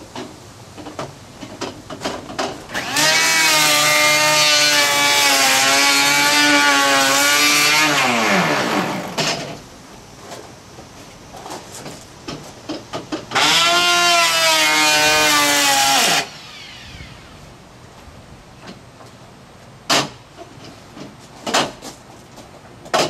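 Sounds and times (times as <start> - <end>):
electric hand planer whining: 2.7 - 9.2, 13.3 - 17.3.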